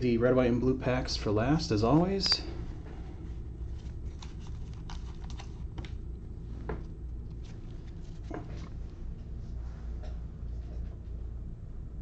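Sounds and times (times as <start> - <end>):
cards clicking and tapping: 4.1 - 6.0.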